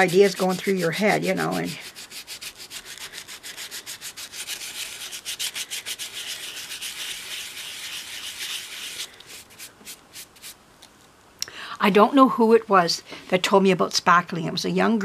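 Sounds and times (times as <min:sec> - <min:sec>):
hand sanding filler: 0:00.0 - 0:10.6.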